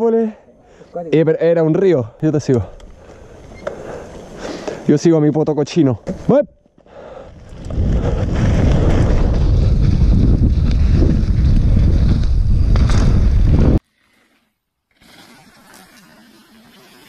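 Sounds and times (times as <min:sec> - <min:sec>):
faint outdoor sound: 0:00.0 - 0:17.0
wind buffeting microphone: 0:07.1 - 0:13.8
mountain bike rattling on dirt trail: 0:07.2 - 0:13.8.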